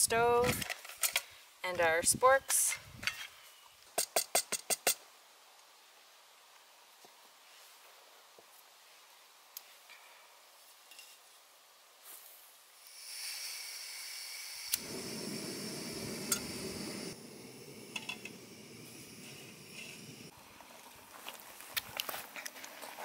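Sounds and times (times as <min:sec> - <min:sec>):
gas hissing from stove burner: 0:12.8 - 0:20.4
flame burning with low rumble: 0:12.8 - 0:21.7.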